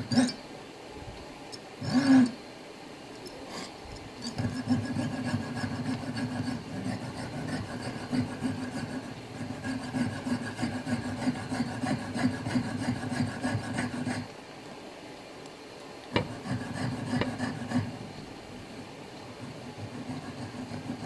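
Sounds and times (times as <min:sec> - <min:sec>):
saw cutting brass: 0:04.2 - 0:14.3, 0:16.2 - 0:18.0, 0:19.4 - 0:21.0.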